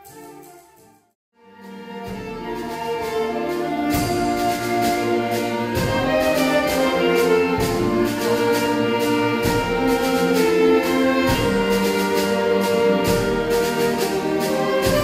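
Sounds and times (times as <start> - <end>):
wind ensemble playing chords: 0.0 - 15.0
low drum strokes: 11.2 - 15.0.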